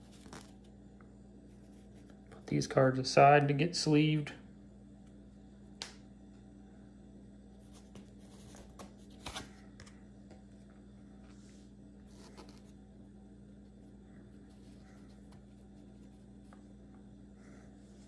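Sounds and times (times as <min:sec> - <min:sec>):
cards clicking and sliding: 0:07.7 - 0:10.0.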